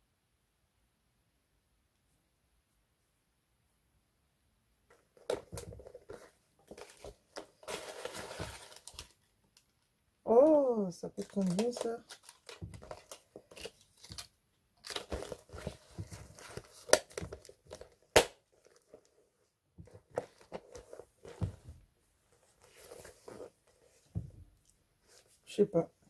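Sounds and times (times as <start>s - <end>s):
vinyl bag crinkling: 5.2s - 9.3s, 11.1s - 19.1s.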